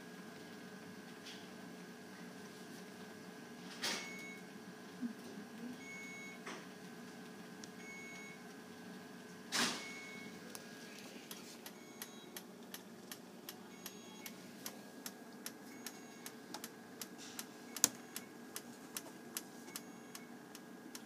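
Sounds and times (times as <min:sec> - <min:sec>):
steady electrical hum: 0:00.0 - 0:21.0.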